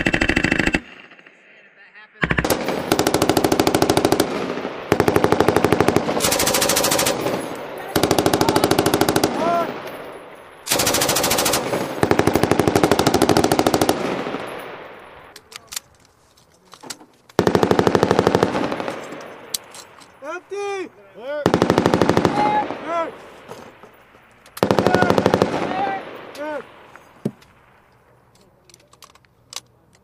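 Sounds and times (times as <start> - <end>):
machine gun bursts with echo: 0.0 - 1.4, 2.2 - 15.0, 17.4 - 19.4, 21.4 - 22.9, 24.6 - 26.8.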